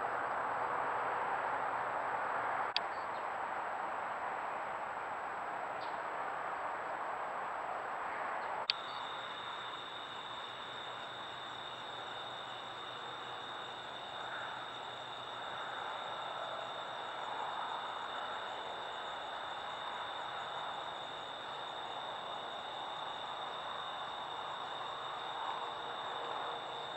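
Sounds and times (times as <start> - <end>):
night insects trilling: 8.7 - 26.9.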